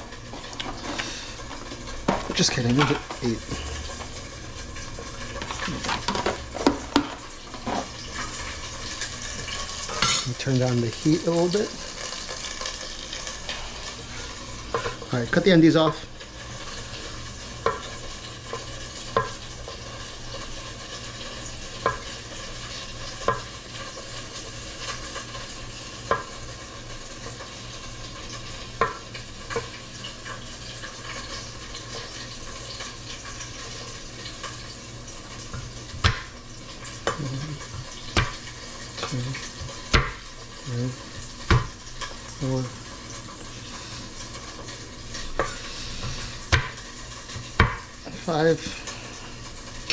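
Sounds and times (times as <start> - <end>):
dumplings sizzling in a pan: 0.0 - 49.9
knife tapping on cutting board: 47.6 - 47.8.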